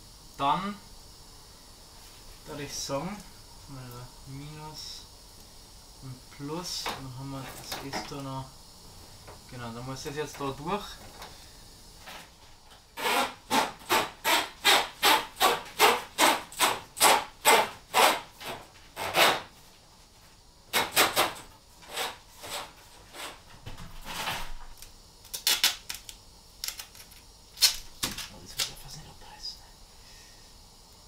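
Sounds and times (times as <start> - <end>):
cable rubbing scrapes: 13.0 - 19.4, 21.9 - 23.4.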